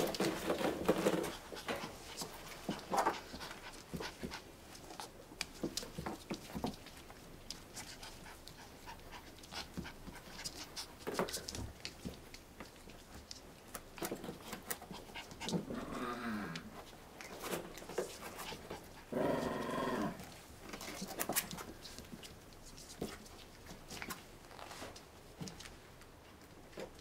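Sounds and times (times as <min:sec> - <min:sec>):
puppies panting and scuffling: 0:00.0 - 0:15.8, 0:16.6 - 0:27.0
puppy growl: 0:15.2 - 0:16.8, 0:19.0 - 0:20.4.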